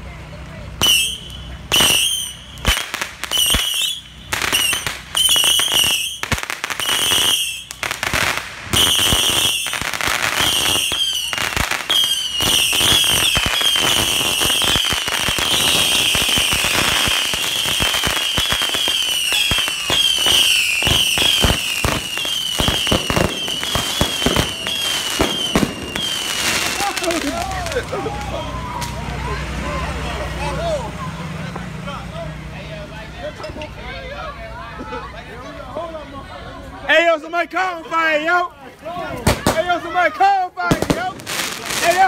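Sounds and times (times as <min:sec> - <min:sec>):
shrill firework whistles: 0:00.8 - 0:07.8, 0:08.7 - 0:26.7
fireworks popping and banging: 0:00.8 - 0:29.2, 0:39.0 - 0:39.9, 0:40.6 - 0:42.0.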